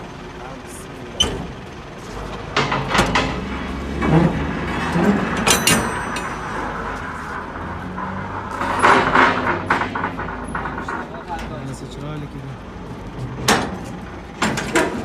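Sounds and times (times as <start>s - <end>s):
metal latches clanking: 2.3s - 6.8s, 13.4s - 15.0s
metallic clang: 2.5s - 7.1s.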